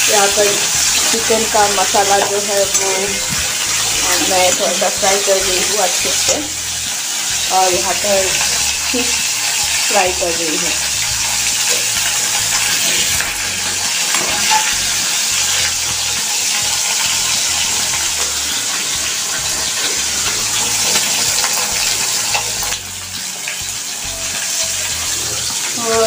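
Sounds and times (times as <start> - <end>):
fish sizzling in hot oil: 0.0 - 26.0.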